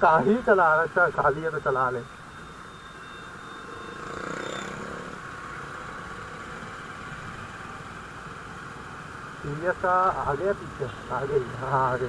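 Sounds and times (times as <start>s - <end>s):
road and traffic noise: 0.0s - 12.0s
motorcycle engine running: 2.2s - 12.0s
passing vehicle: 3.1s - 12.0s.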